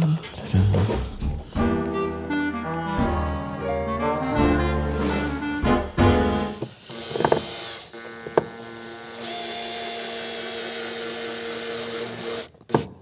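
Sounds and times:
drill motor driving screw: 0:06.3 - 0:13.0
drill clicks: 0:06.5 - 0:13.0.

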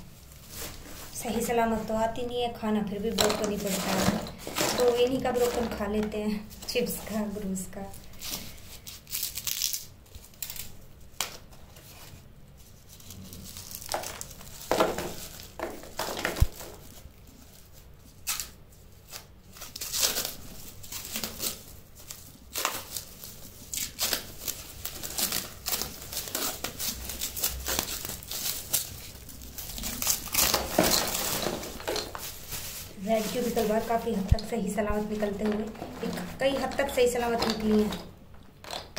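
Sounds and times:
plastic wrap crinkling and tearing: 0:00.0 - 0:38.9.

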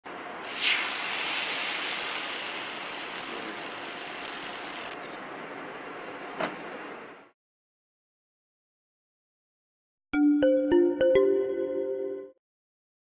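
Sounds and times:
batter sizzling in hot oil: 0:00.4 - 0:05.0.

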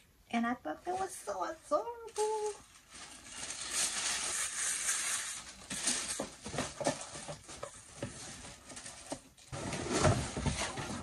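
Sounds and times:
dust bag rustling and crinkling: 0:02.1 - 0:08.7.

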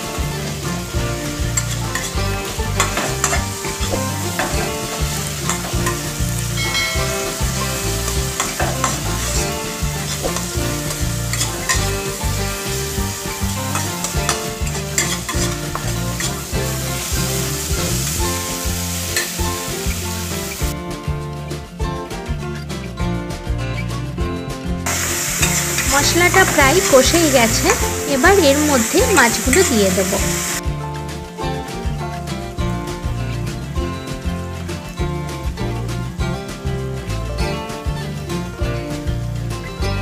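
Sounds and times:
food sizzling in oil: 0:00.0 - 0:20.8, 0:24.9 - 0:30.6
background music: 0:00.0 - 0:40.0
spatula scraping pan: 0:06.6 - 0:12.8, 0:13.5 - 0:16.5.

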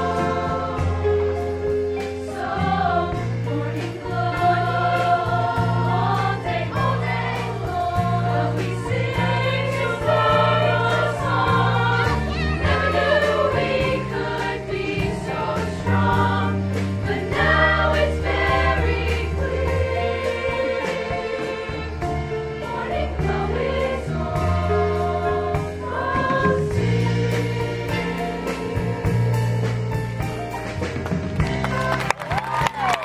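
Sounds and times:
choir singing in harmony: 0:00.0 - 0:30.4
instrumental accompaniment: 0:00.0 - 0:33.0.

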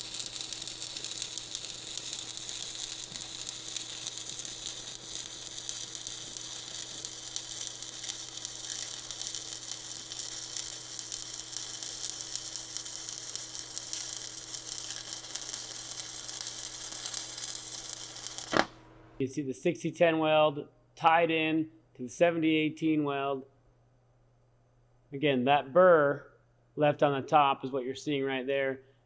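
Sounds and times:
welding arc crackling sizzle: 0:00.0 - 0:19.1.

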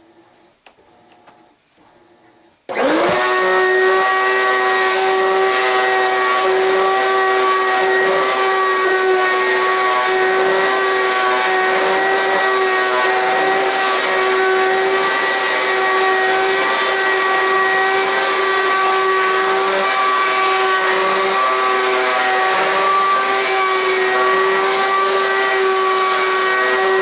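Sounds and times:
vacuum cleaner running: 0:00.8 - 0:27.0.

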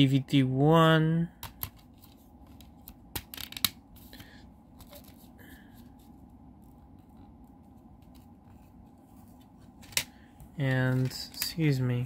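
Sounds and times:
low background hum: 0:00.0 - 0:12.0
soft rustles: 0:03.9 - 0:11.4.

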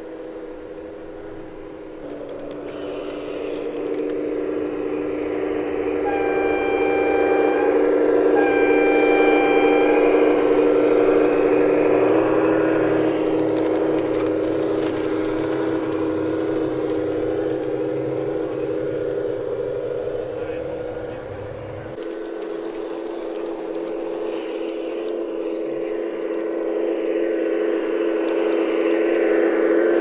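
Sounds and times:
model train running drone: 0:00.0 - 0:30.0
model train horn blasts: 0:02.7 - 0:14.6.

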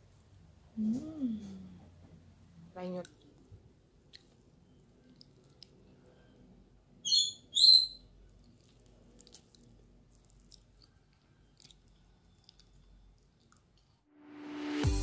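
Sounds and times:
high-pitched chirps: 0:07.0 - 0:08.0.

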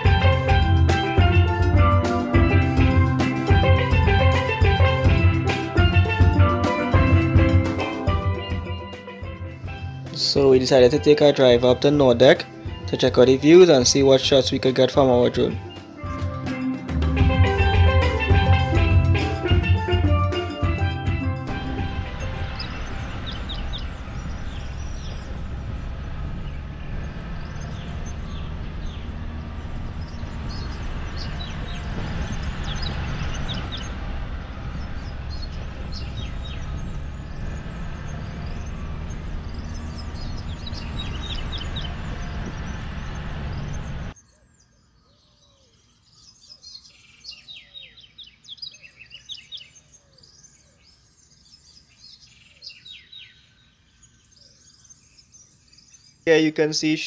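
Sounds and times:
birds chirping: 0:00.0 - 0:57.0
low rising and falling bird calls: 0:21.4 - 0:56.6
steady low rumble: 0:21.5 - 0:44.2.

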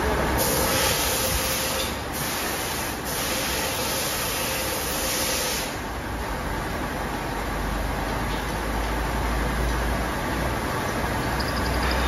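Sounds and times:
low workshop rumble: 0:00.0 - 0:12.0.

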